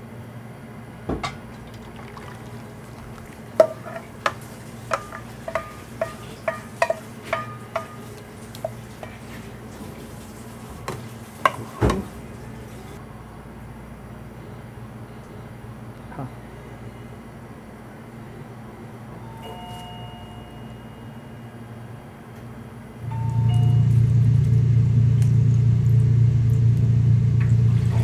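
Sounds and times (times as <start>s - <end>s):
steady low hum: 0.0s - 11.6s, 12.2s - 28.0s
metal utensil clinking on pot: 3.6s - 9.3s.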